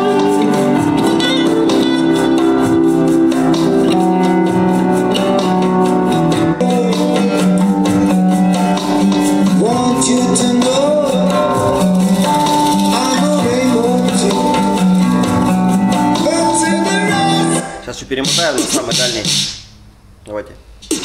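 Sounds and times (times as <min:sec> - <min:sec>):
person singing: 0:00.0 - 0:05.0, 0:06.1 - 0:08.3, 0:09.3 - 0:17.8
song with plucked guitar: 0:00.0 - 0:19.0.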